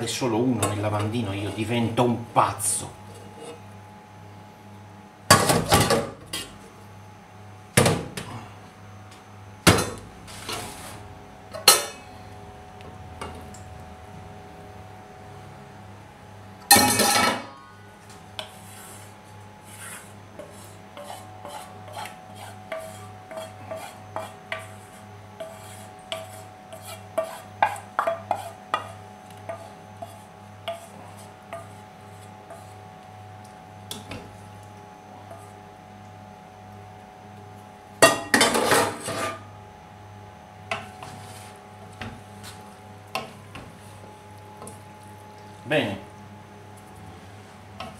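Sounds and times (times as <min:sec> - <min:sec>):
faint steady hum: 0:00.0 - 0:47.9
wooden spoon scraping pan: 0:18.4 - 0:32.8.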